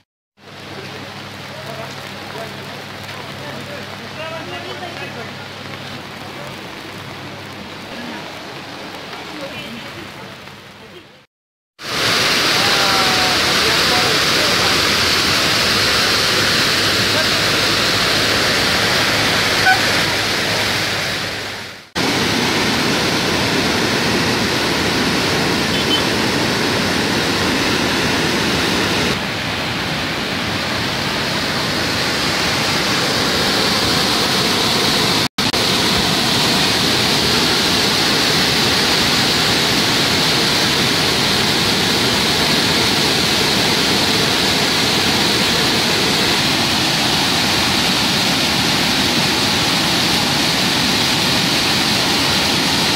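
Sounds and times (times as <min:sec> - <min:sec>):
river rushing in flood: 0:11.8 - 0:52.9.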